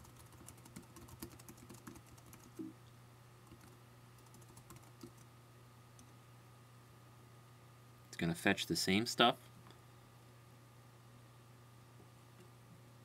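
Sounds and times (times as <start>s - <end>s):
typing on computer keyboard: 0.0s - 2.7s, 3.5s - 5.3s
low steady hum: 0.0s - 13.0s.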